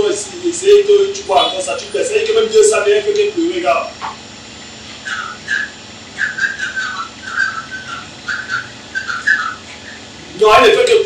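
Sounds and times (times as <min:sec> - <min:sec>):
person whistling a tune: 0:05.0 - 0:10.0.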